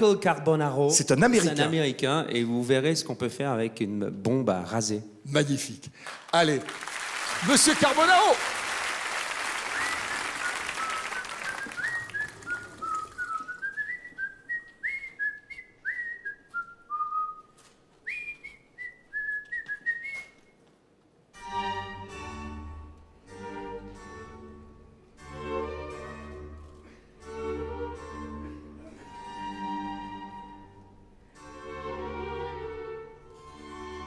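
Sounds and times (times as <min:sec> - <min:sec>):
audience applause: 0:06.0 - 0:14.2
person whistling a bouncy tune: 0:09.7 - 0:17.5, 0:18.1 - 0:20.4
orchestral string music: 0:21.3 - 0:34.0.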